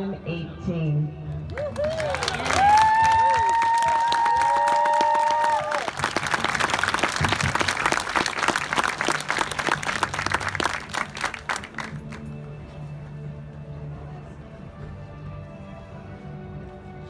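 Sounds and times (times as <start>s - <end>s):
crowd clapping and applauding: 1.4s - 12.5s.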